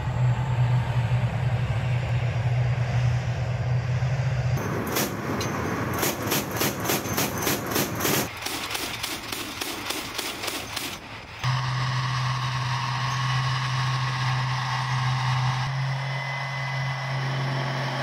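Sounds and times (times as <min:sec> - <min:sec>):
diesel engine droning: 0:00.0 - 0:08.4, 0:10.0 - 0:18.0
steel tracks clattering: 0:04.6 - 0:15.6.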